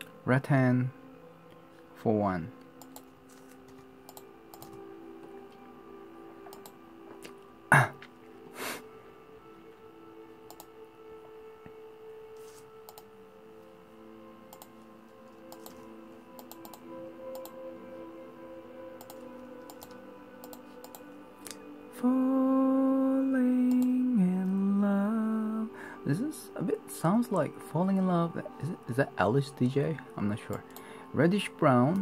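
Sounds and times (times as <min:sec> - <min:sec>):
faint background music: 0:00.0 - 0:32.0
laptop keyboard typing: 0:04.1 - 0:04.8, 0:14.5 - 0:14.7, 0:15.5 - 0:15.8, 0:16.4 - 0:17.5, 0:19.0 - 0:21.1.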